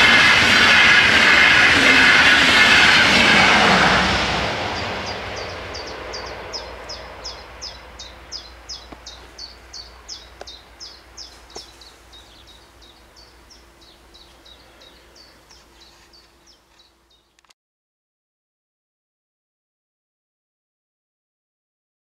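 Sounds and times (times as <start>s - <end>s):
train rumble: 0.0s - 17.3s.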